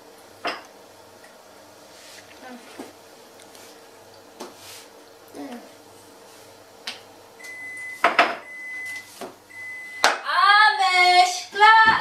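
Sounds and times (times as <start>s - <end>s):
long high beeps: 7.4s - 10.0s
child singing: 10.3s - 12.0s.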